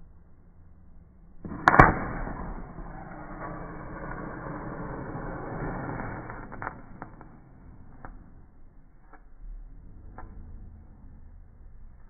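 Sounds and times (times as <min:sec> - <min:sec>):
burning match hissing: 0:01.6 - 0:07.9.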